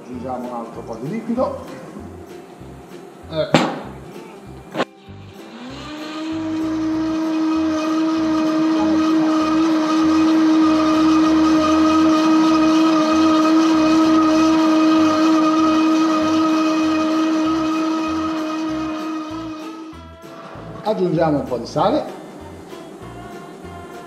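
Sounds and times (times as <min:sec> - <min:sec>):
blender motor whine: 0:04.7 - 0:20.0.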